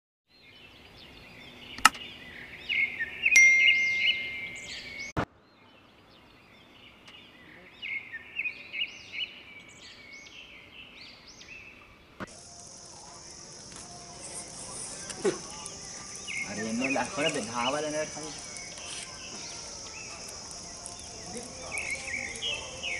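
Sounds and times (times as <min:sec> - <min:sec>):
small birds chirping: 0:00.3 - 0:22.9
sharp click: 0:01.8 - 0:02.0
ringing ding: 0:03.4 - 0:05.0
steady high hiss: 0:06.8 - 0:22.9.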